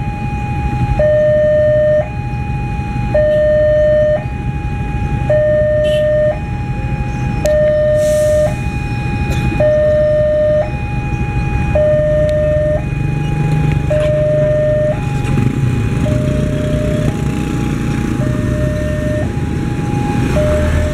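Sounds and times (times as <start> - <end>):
low engine rumble: 0.0 - 20.9
two-tone crossing alarm: 0.0 - 20.9.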